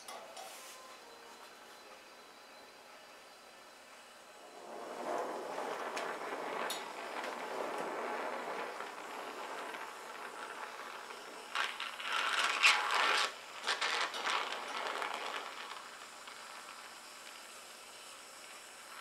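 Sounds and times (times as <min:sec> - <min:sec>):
gas torch flame hissing: 0:03.2 - 0:19.0.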